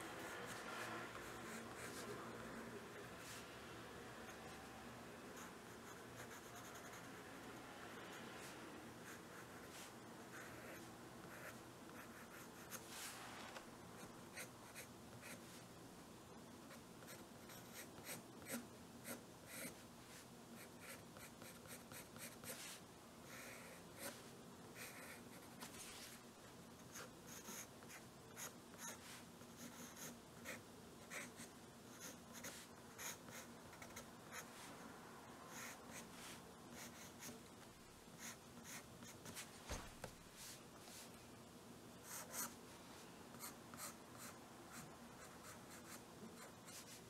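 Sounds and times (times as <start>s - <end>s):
pencil scratching on paper: 5.4s - 7.1s, 26.9s - 34.7s.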